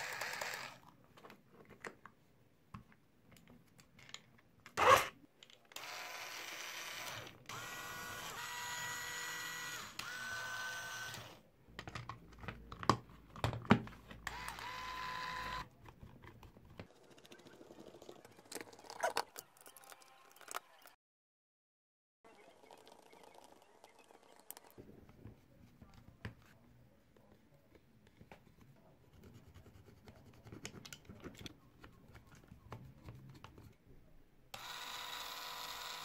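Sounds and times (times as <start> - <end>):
electric screwdriver motor whine: 5.8 - 11.4, 14.3 - 15.7, 34.6 - 36.0.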